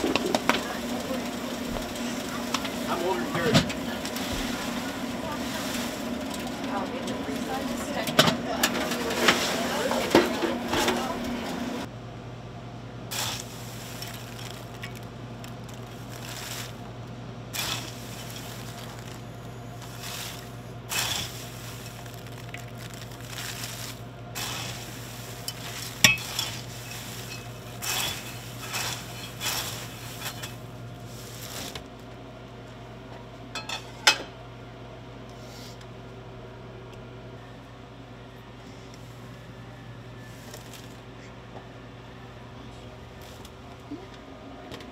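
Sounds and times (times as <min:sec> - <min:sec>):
popcorn machine humming: 0:00.0 - 0:44.9
metal clinks and scrapes: 0:25.4 - 0:30.6.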